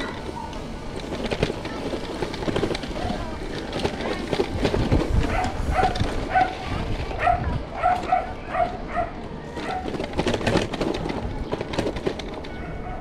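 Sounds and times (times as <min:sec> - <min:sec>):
dog barking: 0:05.3 - 0:06.6, 0:07.2 - 0:09.9.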